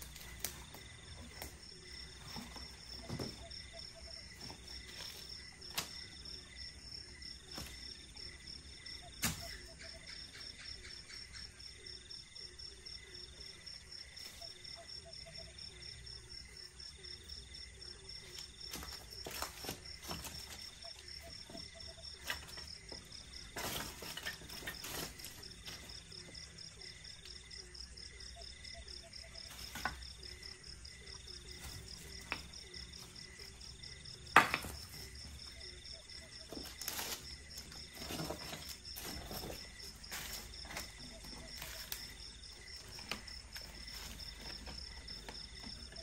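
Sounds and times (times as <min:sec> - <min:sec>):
crickets chirping: 0:00.0 - 0:46.0
debris clinking and clattering: 0:23.3 - 0:26.0.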